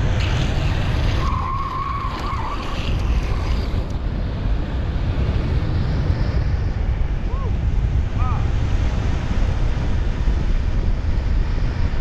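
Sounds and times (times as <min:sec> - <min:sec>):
longboard wheels squealing: 0:00.0 - 0:04.0
road rumble: 0:00.0 - 0:12.0
rushing wind: 0:00.0 - 0:12.0.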